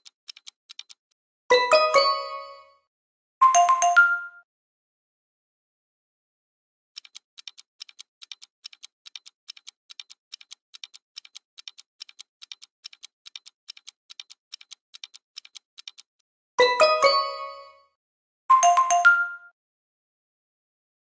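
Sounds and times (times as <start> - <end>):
ticking clock timer: 0.0 - 4.2, 7.0 - 17.9.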